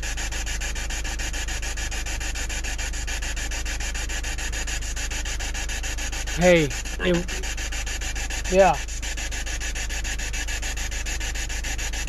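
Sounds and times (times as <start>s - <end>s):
pulsing hiss: 0.0s - 12.0s
person saying yeah: 6.4s - 7.4s, 8.5s - 8.8s
low steady hum: 6.4s - 7.5s.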